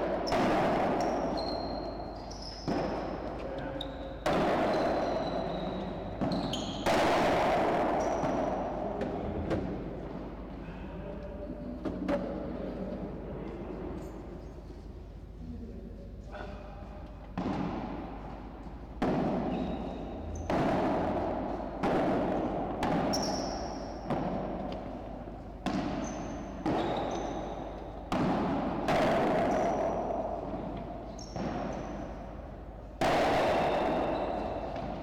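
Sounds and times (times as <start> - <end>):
padel ball struck by rackets: 0.0 - 3.4, 4.2 - 9.8, 17.4 - 18.2, 19.0 - 35.0
ball bouncing on court: 0.0 - 10.4, 17.3 - 35.0.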